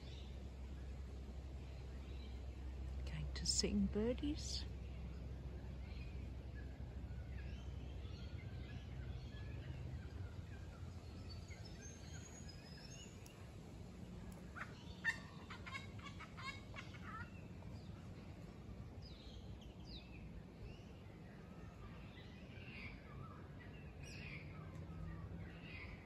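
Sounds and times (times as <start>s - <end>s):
low steady rumble: 0.0s - 26.0s
small birds singing: 0.0s - 26.0s.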